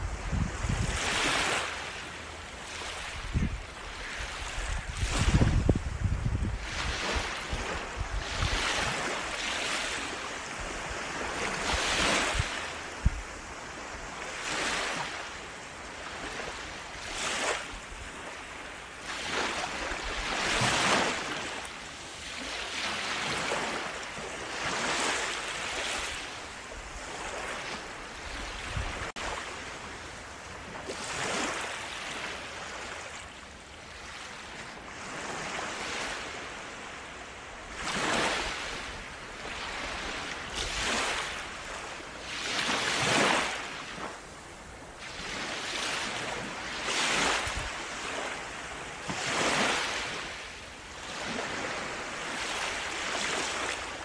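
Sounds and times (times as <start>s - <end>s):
waves washing up beach: 0.0s - 54.0s.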